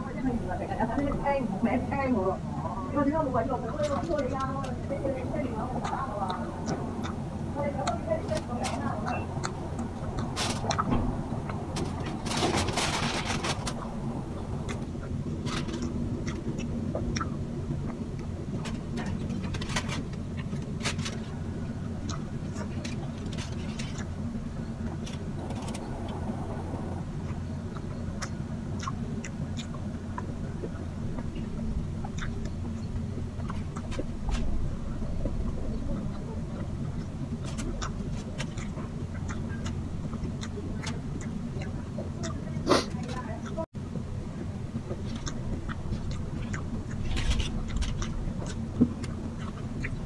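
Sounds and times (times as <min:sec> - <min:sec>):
steady low hum: 0:00.0 - 0:50.0
person chewing: 0:05.8 - 0:26.3, 0:27.0 - 0:43.6, 0:44.7 - 0:50.0
lip smacks and mouth clicks: 0:07.8 - 0:12.2, 0:12.9 - 0:24.2, 0:27.2 - 0:43.6, 0:44.8 - 0:50.0.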